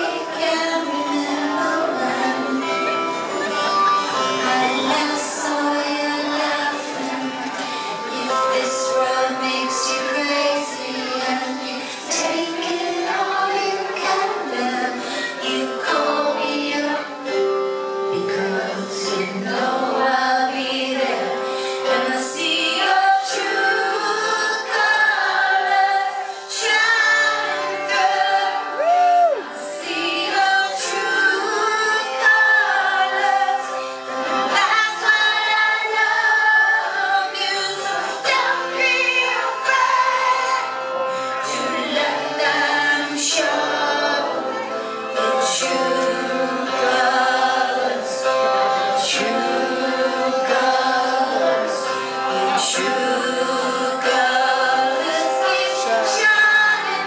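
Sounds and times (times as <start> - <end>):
live band playing: 0.0 - 22.2
woman singing pop song: 0.0 - 57.0.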